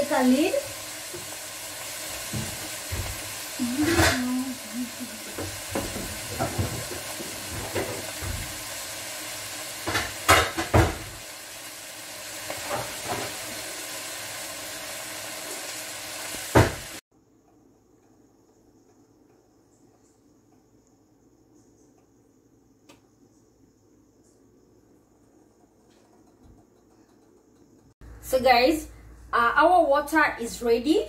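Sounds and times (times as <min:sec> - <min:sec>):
vegetables sizzling in a pot: 0:00.0 - 0:17.0.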